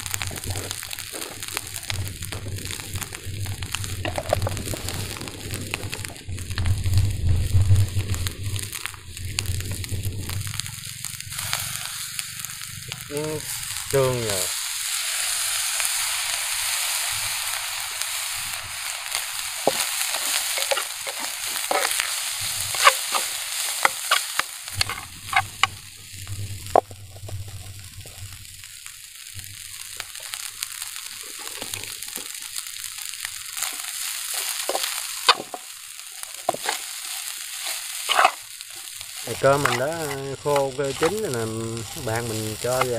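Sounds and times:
rice sizzling in hot pan: 0.0 - 42.9
utensil knocking and scraping pan: 19.7 - 22.1, 22.7 - 25.7, 38.1 - 38.4, 39.5 - 41.2.

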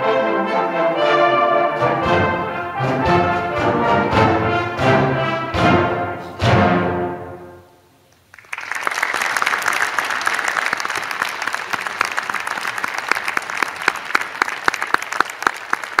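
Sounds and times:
audience applauding: 8.3 - 16.0.

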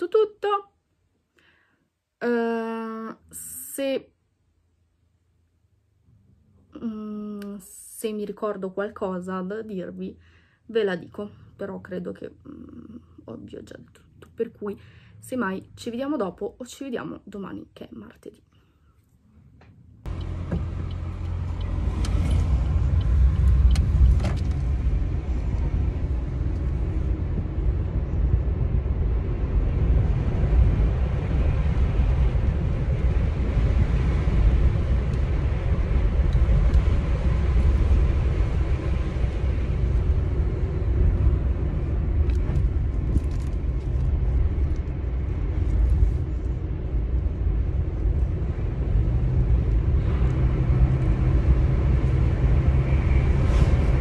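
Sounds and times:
car engine and road noise: 19.4 - 54.0.

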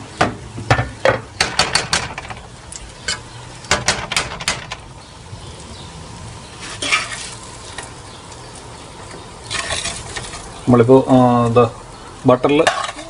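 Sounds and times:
faint sizzle: 0.0 - 13.0
metal ladle clinking on pans: 12.5 - 13.0.

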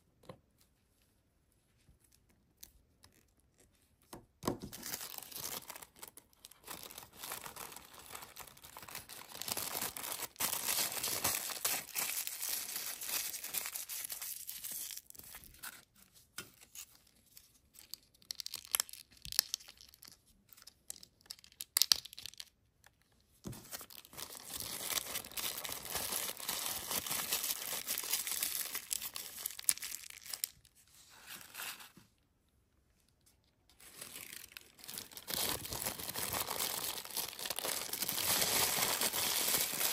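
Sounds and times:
tissue paper crinkling: 4.8 - 15.5, 23.6 - 32.0, 33.8 - 39.9.

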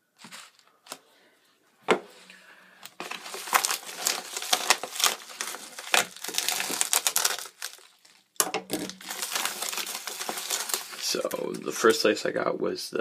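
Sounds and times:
bubble mailer crinkling: 2.9 - 12.0.

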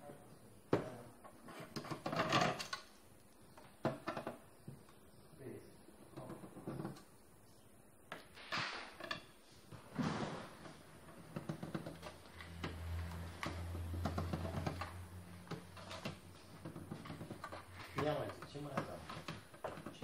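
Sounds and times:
light clicks and knocks of parts: 11.1 - 20.0.

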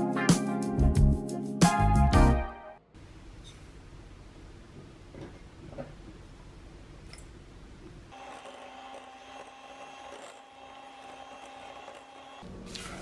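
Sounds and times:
electric hand mixer running: 8.1 - 12.5.

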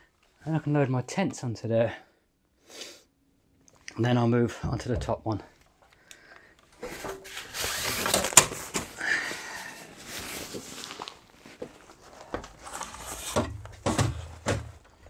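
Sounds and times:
bagged gear rustling and scraping: 6.7 - 15.0
knocks and thuds on shelves: 12.3 - 15.0.

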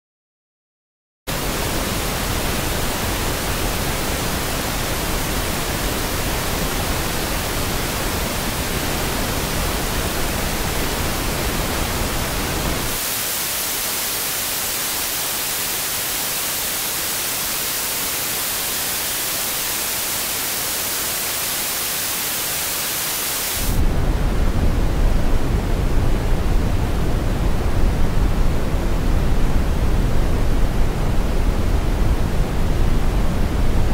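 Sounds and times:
steady masking noise hiss: 1.3 - 33.9.

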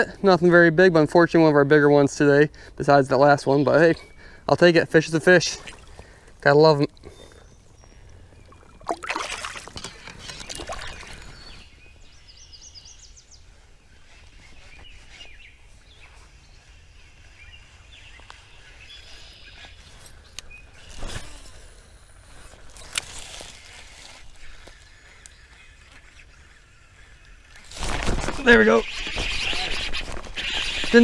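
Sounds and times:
water splashing and sloshing: 5.4 - 7.1, 8.4 - 11.4
bird chirping: 7.0 - 9.0, 9.8 - 21.3.

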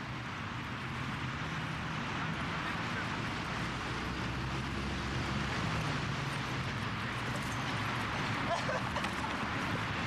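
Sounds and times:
traffic hiss and rumble: 0.0 - 10.0.

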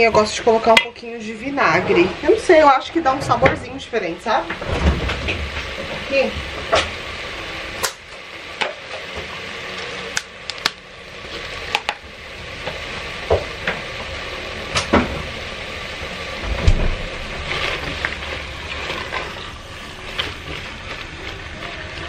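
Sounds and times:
meat sizzling in a pot: 3.8 - 22.0
low thump: 16.4 - 17.5
wooden spoon scraping a pot: 17.0 - 22.0.

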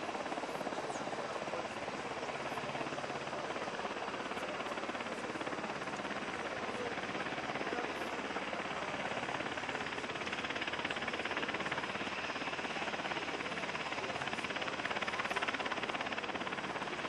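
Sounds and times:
helicopter rotor chopping: 0.0 - 17.0.

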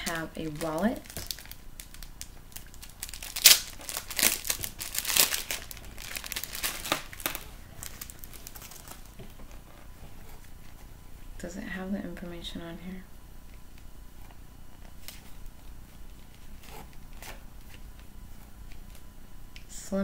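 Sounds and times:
packaging crinkling and rustling: 0.0 - 9.7.

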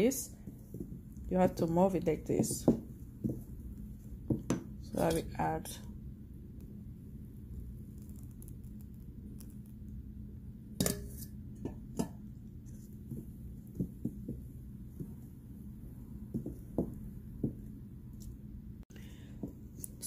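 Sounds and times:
steady low hum: 0.0 - 20.0
spoon beating batter in metal bowl: 10.8 - 18.3.

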